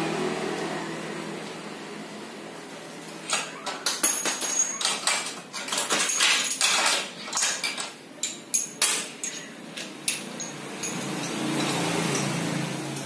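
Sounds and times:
metal tools clinking in tray: 3.2s - 13.0s.

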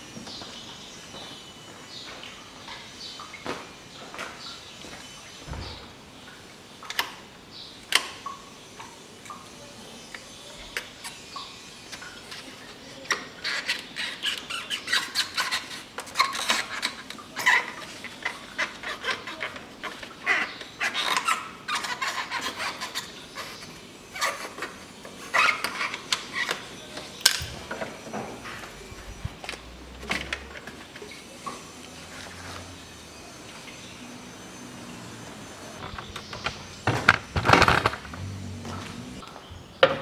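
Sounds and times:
rubber and plastic parts squeaking: 12.4s - 31.4s, 35.7s - 39.2s.

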